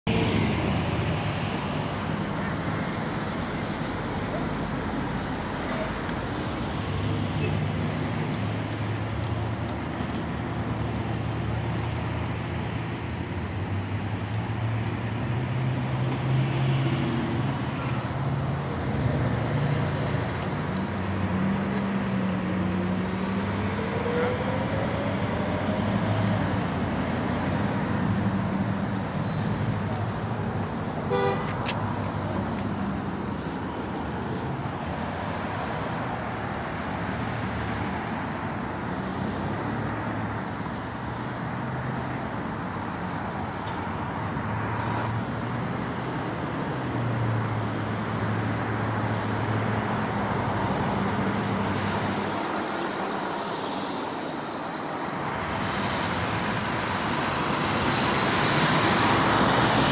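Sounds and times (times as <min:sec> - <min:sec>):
road traffic passing: 0:00.0 - 0:59.9
car horn toot: 0:31.0 - 0:31.6.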